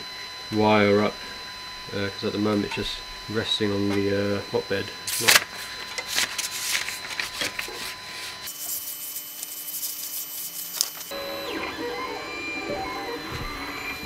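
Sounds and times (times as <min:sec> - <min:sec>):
stepper motors whining: 0:00.0 - 0:14.0
paper rustling and scraping: 0:05.1 - 0:08.8, 0:09.4 - 0:11.1.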